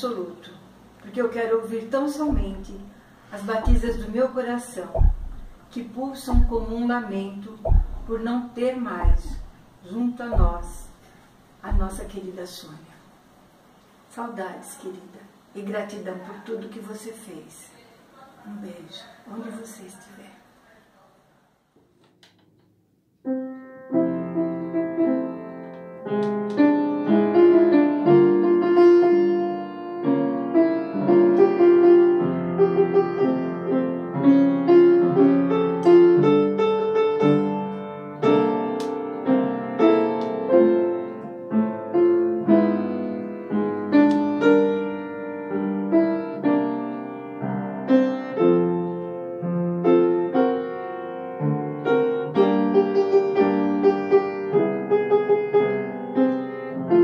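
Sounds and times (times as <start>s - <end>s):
solo piano piece: 4.9s - 6.9s, 23.2s - 57.0s.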